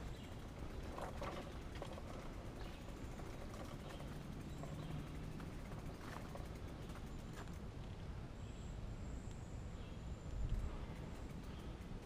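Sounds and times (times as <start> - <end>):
bike clicks and rattles: 0.0 - 8.0, 10.3 - 12.0
tyres rolling over dirt: 0.5 - 7.5.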